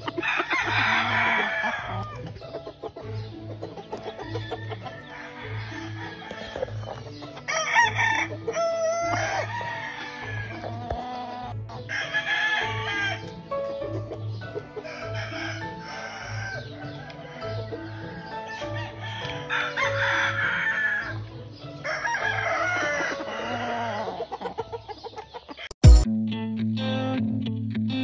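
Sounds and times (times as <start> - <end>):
roosters crowing: 0.0 - 2.4, 3.0 - 25.7
background music with beat: 25.8 - 28.0.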